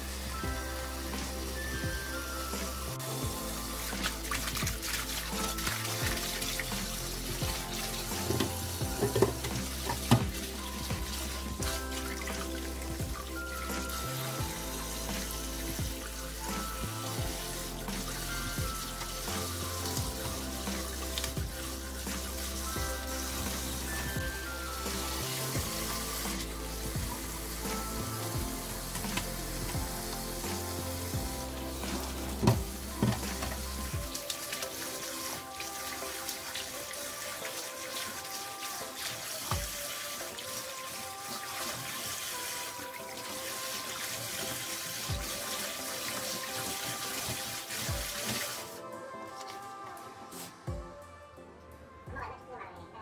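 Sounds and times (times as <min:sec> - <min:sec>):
sharp water splashes: 0:00.0 - 0:48.8
tap running into bowl of water: 0:08.2 - 0:11.2.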